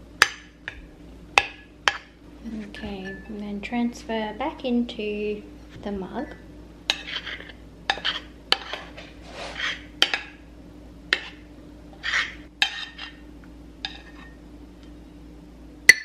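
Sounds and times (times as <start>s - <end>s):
spoon scraping batter from bowl: 6.9s - 9.9s, 12.0s - 13.2s, 13.9s - 14.4s.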